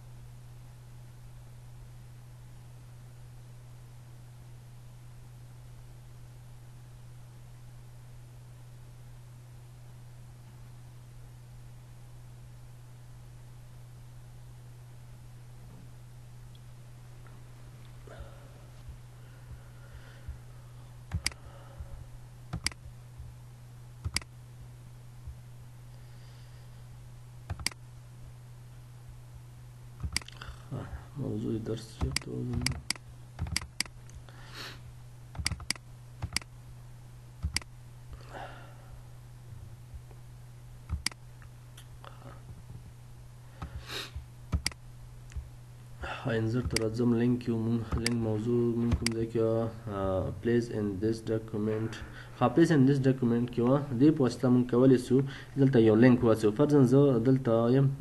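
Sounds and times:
steady low hum: 0.0 - 58.0
computer mouse clicking: 21.1 - 21.4, 22.5 - 22.8, 24.0 - 24.3, 27.5 - 27.8, 30.0 - 30.4, 32.0 - 34.2, 35.4 - 36.5, 37.4 - 37.7, 40.9 - 41.2, 44.5 - 45.4, 46.6 - 46.9, 47.9 - 48.2, 48.9 - 49.2
computer mouse double clicks: 22.6 - 22.8.

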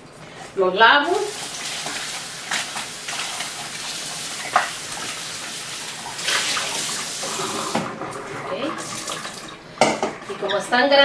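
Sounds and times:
tap water splashing into bowl: 4.4 - 5.2.

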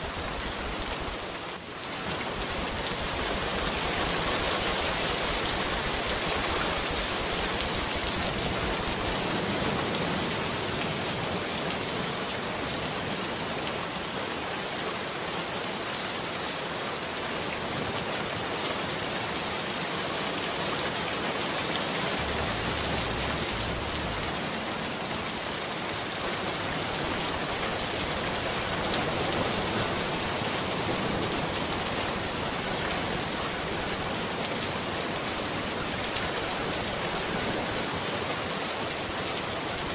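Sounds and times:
rain hissing: 21.6 - 34.2
low rumble: 22.0 - 25.4.

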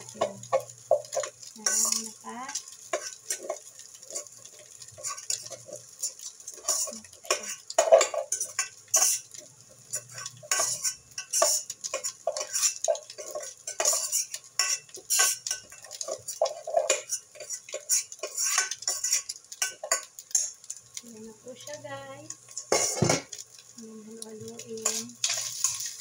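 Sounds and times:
metal clinks and scrapes: 0.2 - 2.2, 2.9 - 20.6, 22.5 - 23.4, 24.8 - 26.0
pot rim knocking against pan: 22.7 - 23.4.

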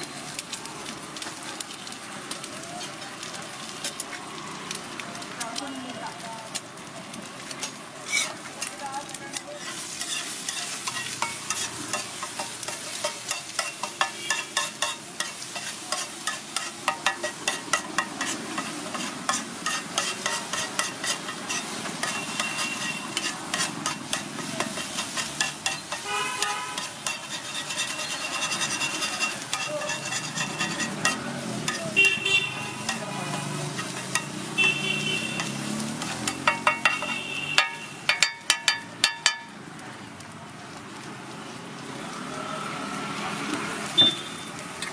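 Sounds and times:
egg sizzling: 0.0 - 44.9
metal spatula scraping griddle: 7.4 - 39.5
vehicle horns honking: 22.0 - 23.2, 26.0 - 27.0, 31.8 - 33.5, 34.5 - 35.6, 36.8 - 38.0, 44.0 - 44.6.

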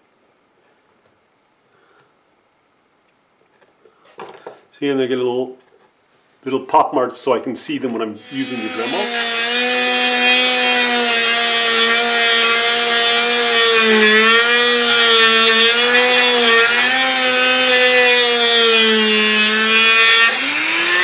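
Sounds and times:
rotary tool grinding wood: 8.2 - 21.0.

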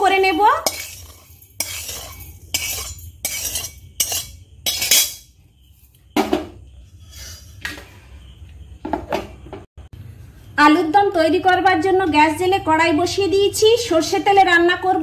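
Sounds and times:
metal spatula scraping spices: 0.0 - 5.3.

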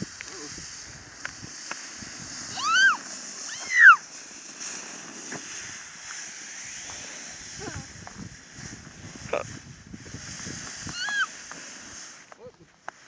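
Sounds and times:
young child squealing: 2.5 - 4.0, 10.9 - 11.3.

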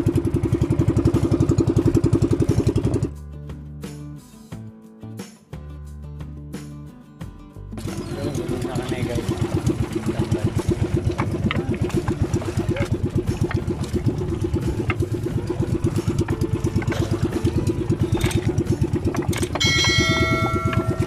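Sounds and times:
boat engine thudding: 0.0 - 3.1, 7.8 - 21.0
bell-like chime: 19.6 - 21.0.

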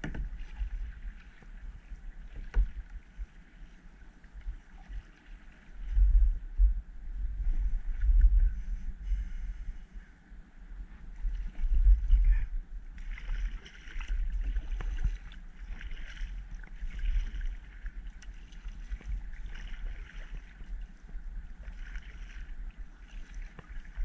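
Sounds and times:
kayak paddle splashing water: 0.0 - 6.0, 12.9 - 24.0
steady low rumble: 0.0 - 24.0.

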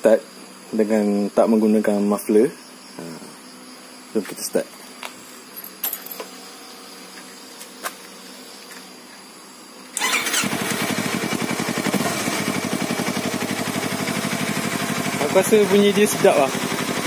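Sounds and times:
motorcycle engine starting and idling: 9.9 - 17.0.

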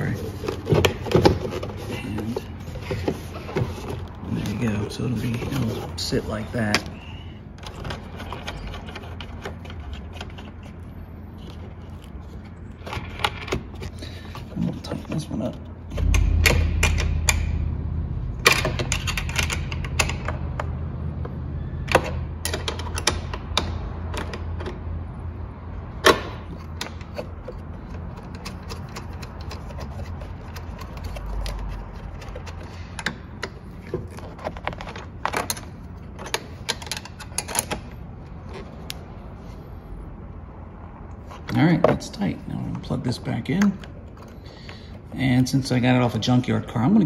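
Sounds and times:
low hum: 15.6 - 21.9.

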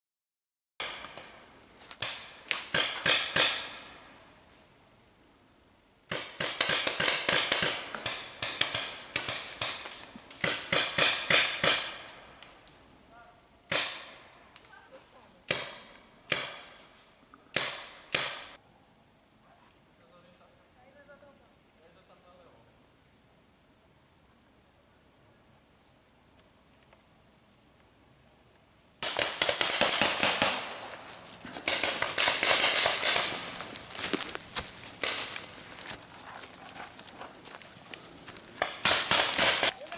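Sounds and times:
footsteps crunching dry leaves: 29.3 - 39.9.

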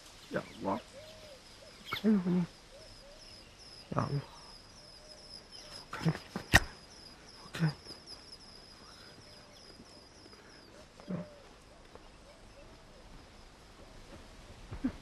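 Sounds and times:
sharp click: 6.4 - 6.8.

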